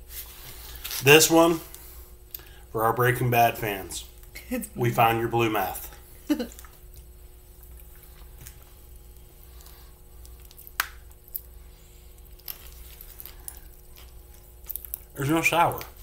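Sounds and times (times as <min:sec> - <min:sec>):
popping candy crackling: 0:06.4 - 0:16.0.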